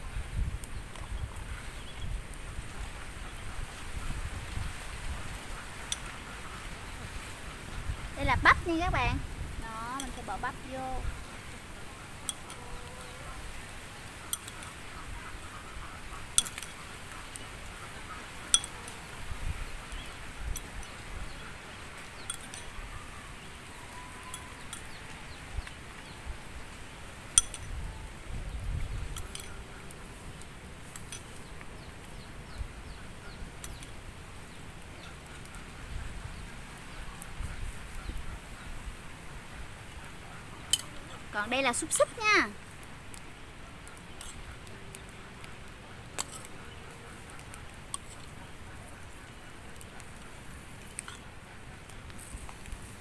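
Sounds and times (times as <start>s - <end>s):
spoon clinking on metal cups: 22.3s - 22.8s, 27.4s - 27.8s.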